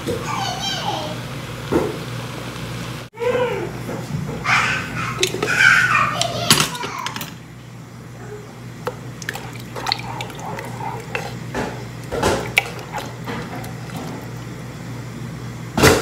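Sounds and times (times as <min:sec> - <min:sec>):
liquid sloshing: 0:05.1 - 0:05.6, 0:08.8 - 0:14.8
spoon scraping and knocking pot: 0:08.9 - 0:14.4.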